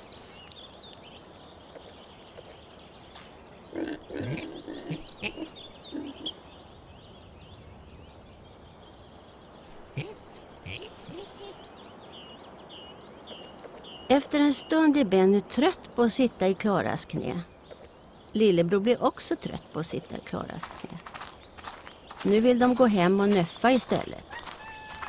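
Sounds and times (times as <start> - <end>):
birds chirping: 0.0 - 25.0
pigs grunting: 3.7 - 6.4.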